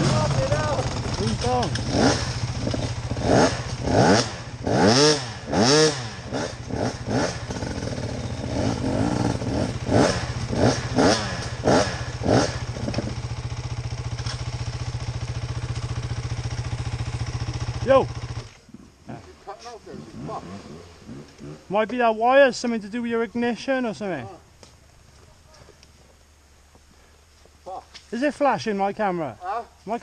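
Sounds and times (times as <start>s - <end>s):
motorcycle throttle blips: 0.0s - 19.2s
motorcycle engines idling: 0.0s - 29.9s.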